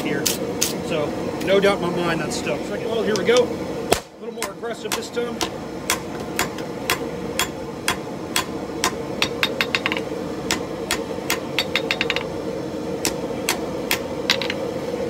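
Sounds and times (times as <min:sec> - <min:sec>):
steady hum: 0:00.0 - 0:15.0
hammer striking on anvil: 0:04.4 - 0:12.3, 0:13.0 - 0:14.6.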